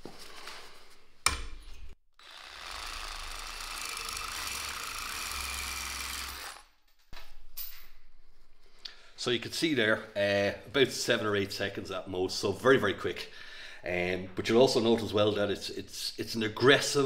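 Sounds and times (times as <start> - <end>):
reciprocating saw cutting steel: 2.2 - 6.8.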